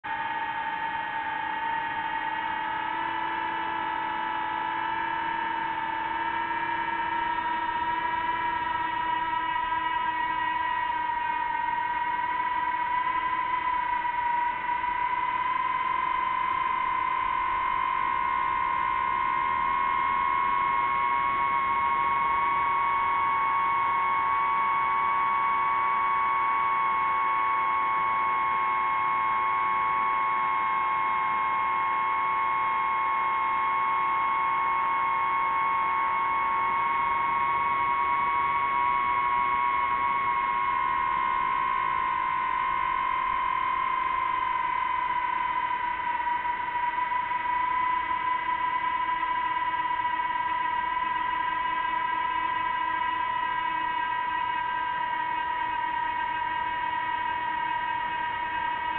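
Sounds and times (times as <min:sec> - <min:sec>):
aircraft motor whine: 0:00.1 - 0:58.9.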